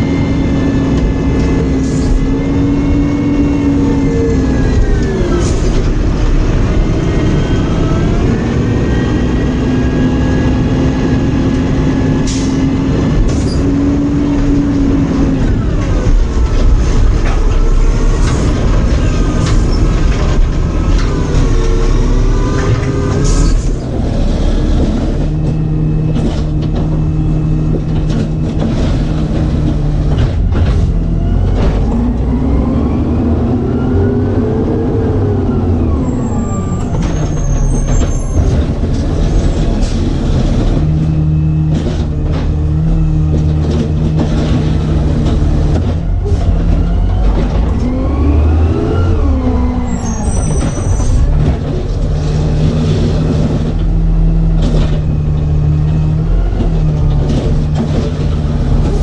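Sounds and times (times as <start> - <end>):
garbage truck diesel engine: 0.0 - 59.0
knocks and clanks: 11.4 - 32.4, 36.8 - 48.3, 49.3 - 59.0.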